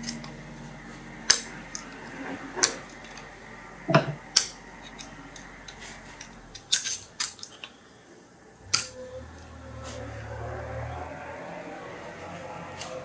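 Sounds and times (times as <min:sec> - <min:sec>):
metal tools clicking and scraping: 0:01.3 - 0:03.3, 0:03.9 - 0:07.8.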